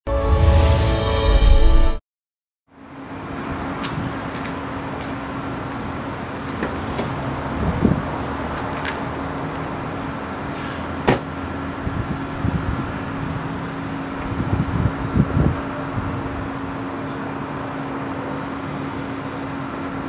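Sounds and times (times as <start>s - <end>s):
car door slamming: 6.6s - 7.2s, 11.0s - 11.4s
car door latch click: 11.0s - 11.3s.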